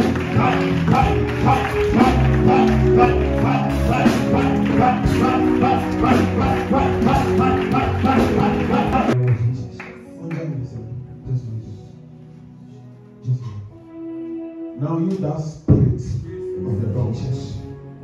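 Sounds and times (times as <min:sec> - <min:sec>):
music with a steady beat: 0:00.0 - 0:10.2.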